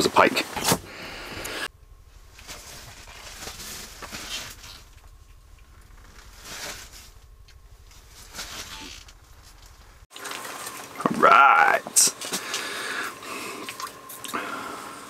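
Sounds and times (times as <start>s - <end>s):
low steady rumble: 0.1s - 10.1s
gear rustling and clicking: 2.2s - 10.0s.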